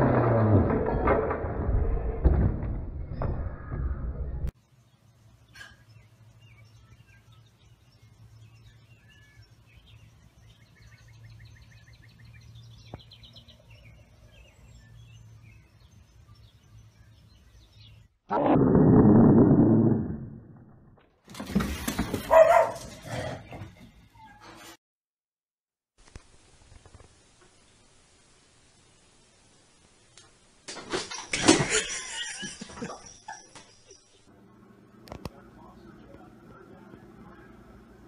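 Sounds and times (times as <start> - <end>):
faint birds chirping: 3.1 - 18.3, 32.2 - 38.0.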